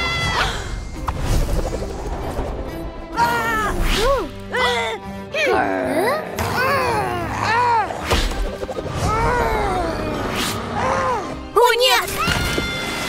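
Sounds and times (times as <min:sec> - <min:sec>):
cartoon background music: 0:00.0 - 0:13.0.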